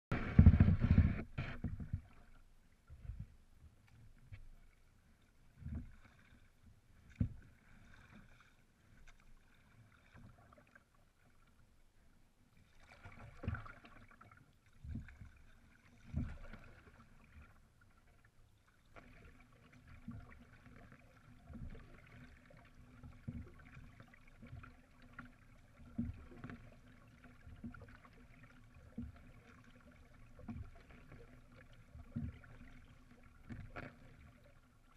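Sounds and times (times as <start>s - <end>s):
paddle stroke thuds through hull: 0.1s - 2.3s, 12.9s - 15.4s, 16.0s - 17.4s.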